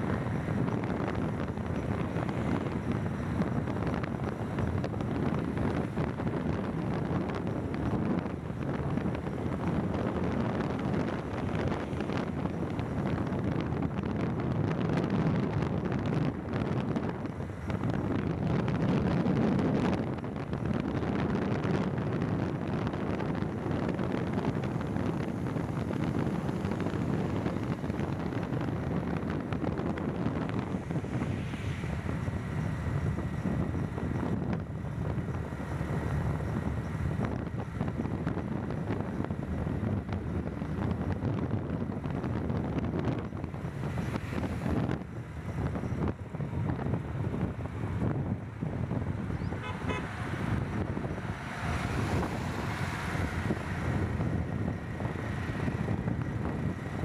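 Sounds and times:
vehicle rumble at highway speed: 0.0 - 57.0
wind buffeting microphone: 0.0 - 57.0.

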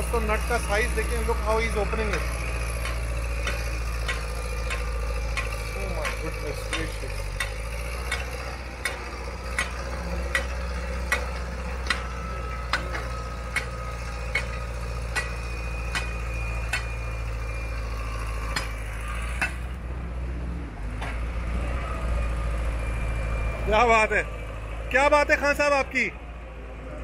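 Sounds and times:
sharp metallic clicks: 0.0 - 17.0
engine drone: 0.0 - 27.0.

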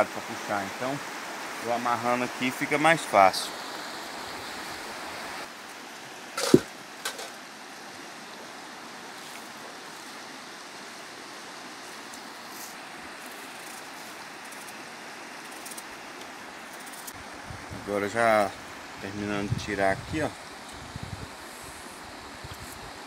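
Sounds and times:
river running over rocks: 0.0 - 17.5
sharp knock: 6.4 - 7.3.

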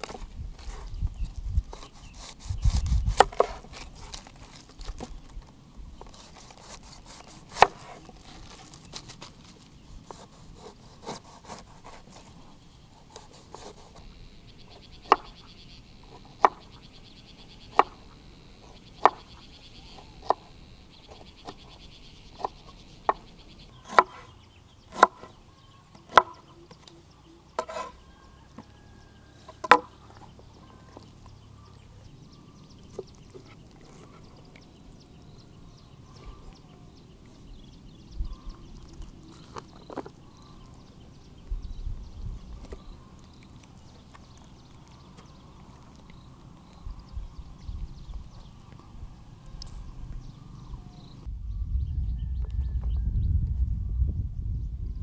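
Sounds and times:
knife chopping on wooden board: 24.9 - 25.3, 27.6 - 28.0.

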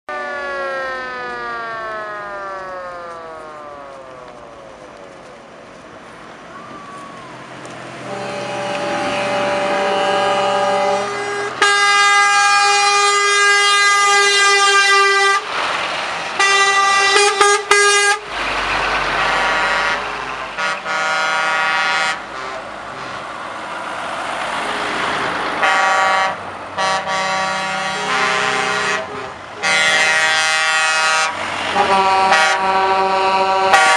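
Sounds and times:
diesel engines: 0.1 - 33.9
truck air horn blasts: 8.0 - 15.5, 16.4 - 18.3, 19.1 - 23.4, 24.7 - 33.9.

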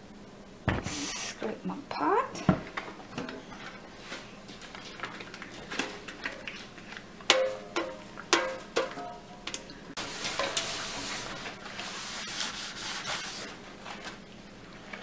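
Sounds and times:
scraping and rubbing: 10.1 - 13.6.

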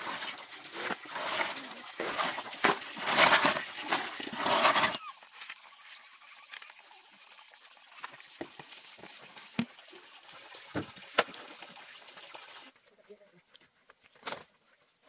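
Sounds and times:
snail shells clattering: 0.0 - 5.0
water splashing: 0.0 - 12.7.

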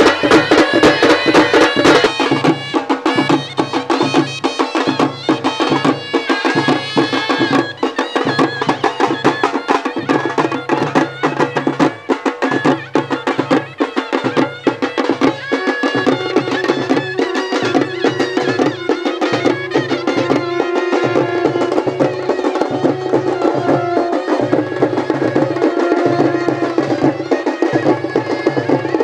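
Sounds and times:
fast dense drumming: 10.1 - 29.0.

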